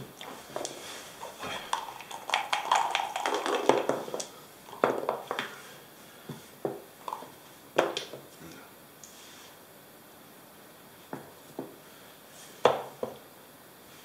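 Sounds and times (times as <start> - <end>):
dice rattling in a cup: 1.7 - 4.2
dice clattering on a board: 1.8 - 4.2.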